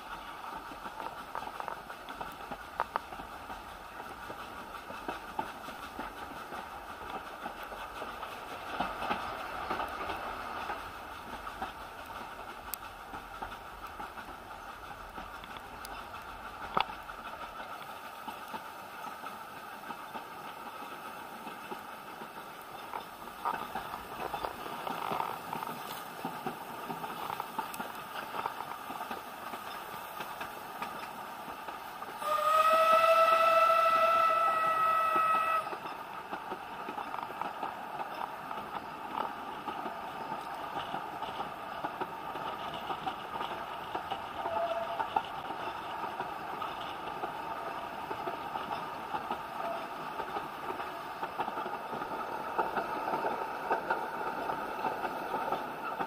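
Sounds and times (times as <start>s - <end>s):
train carriage rumbling on track: 0.0s - 56.0s
sharp track clicks: 0.5s - 32.3s, 34.0s - 56.0s
steam whistle: 32.2s - 35.8s, 44.4s - 45.1s.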